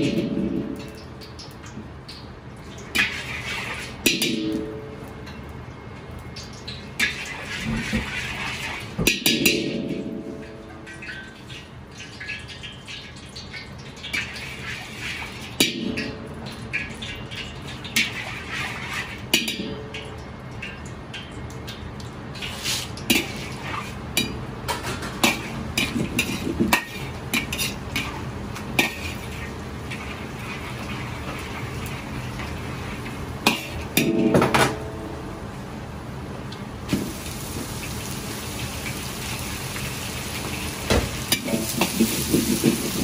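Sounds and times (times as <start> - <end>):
metal pans and utensils clanking: 0.0 - 1.0, 2.9 - 5.4, 7.0 - 21.3, 22.4 - 35.2, 40.3 - 43.0
gas burner roaring: 22.4 - 43.0.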